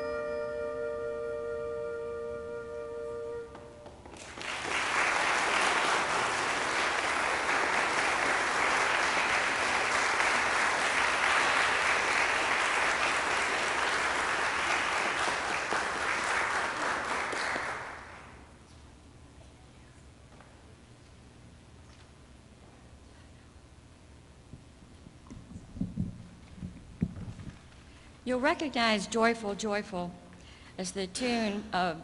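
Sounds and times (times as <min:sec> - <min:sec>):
handbell choir chord: 0:00.0 - 0:03.8
audience applause: 0:04.2 - 0:18.4.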